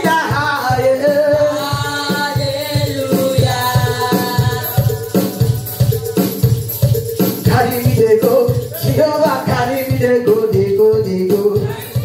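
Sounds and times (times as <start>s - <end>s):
woman singing into microphone: 0.0s - 5.9s
drums keeping steady beat: 0.0s - 12.0s.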